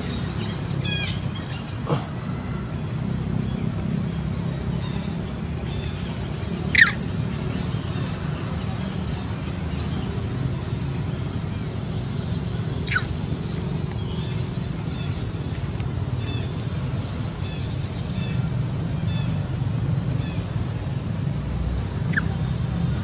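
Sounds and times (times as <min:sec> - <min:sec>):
shrill animal calls: 0:06.7 - 0:07.0.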